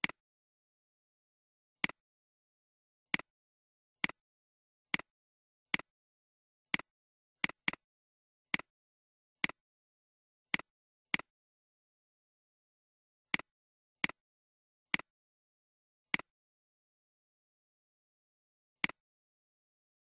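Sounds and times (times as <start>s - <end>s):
computer mouse clicks: 6.8s - 7.8s.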